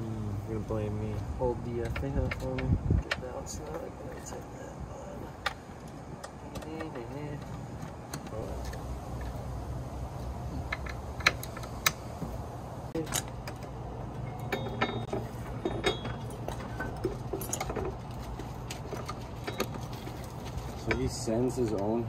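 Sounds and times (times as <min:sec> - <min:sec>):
steady low hum: 0:00.0 - 0:22.0
metal parts clicking and clinking: 0:13.0 - 0:21.9.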